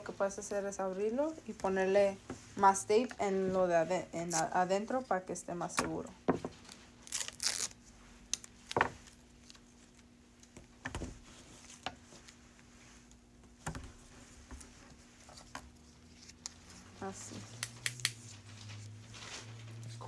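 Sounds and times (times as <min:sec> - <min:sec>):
adhesive tape tearing: 0:07.0 - 0:08.5, 0:17.5 - 0:18.2.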